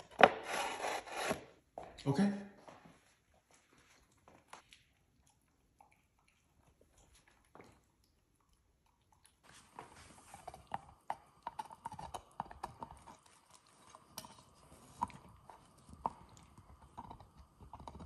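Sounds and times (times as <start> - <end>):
teeth scraping chew toy: 10.4 - 13.4.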